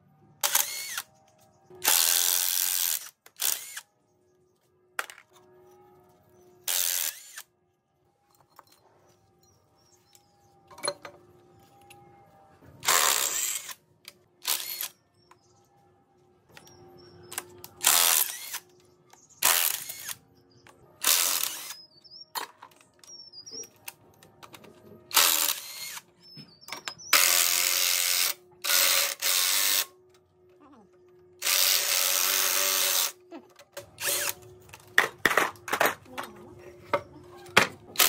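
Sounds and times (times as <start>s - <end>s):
cordless impact wrench bursts: 0.4s - 1.0s, 1.8s - 3.8s, 12.8s - 13.8s, 14.4s - 14.9s.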